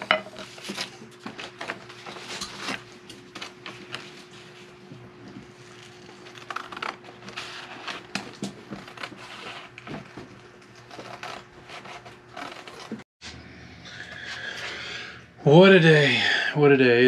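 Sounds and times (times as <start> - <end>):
paper rustling: 0.4 - 4.8
scissors snipping paper: 5.8 - 9.8.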